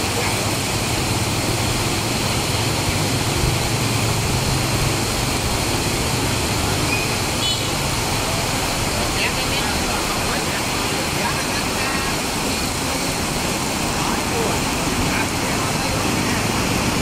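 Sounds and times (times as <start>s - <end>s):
heavy rain on street: 0.0s - 17.0s
motorbike passing: 14.1s - 17.0s.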